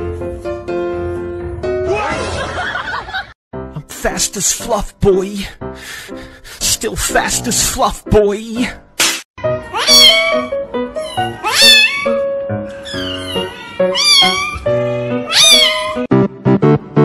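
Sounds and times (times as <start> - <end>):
kittens meowing: 9.5 - 16.1
background music with held chords: 15.9 - 17.0.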